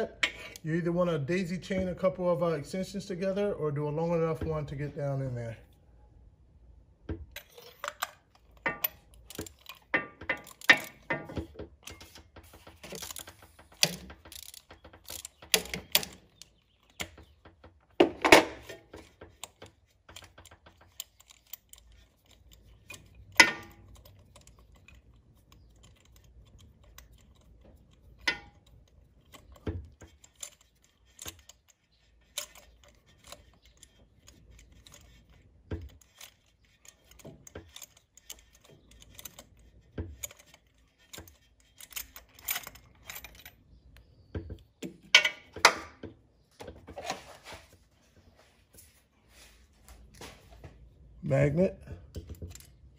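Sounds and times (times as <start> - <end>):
metallic knocks: 7.0 - 16.3
ratchet clicking: 11.8 - 17.3, 18.9 - 43.5.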